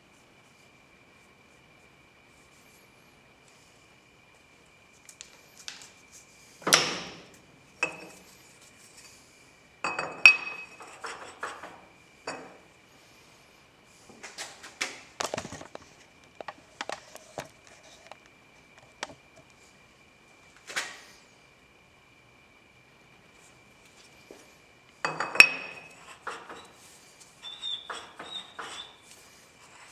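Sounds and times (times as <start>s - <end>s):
metal clunks and clinks: 25.0s - 26.7s.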